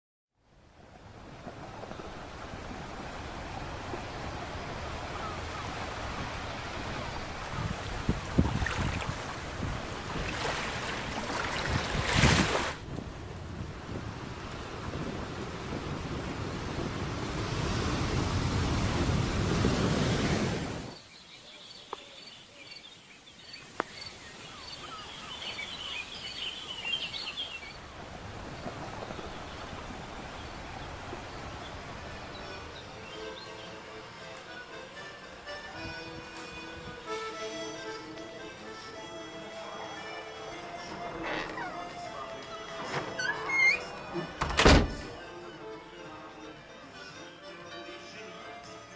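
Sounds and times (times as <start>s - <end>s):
sea waves washing onto beach: 1.0s - 21.0s, 27.8s - 32.8s.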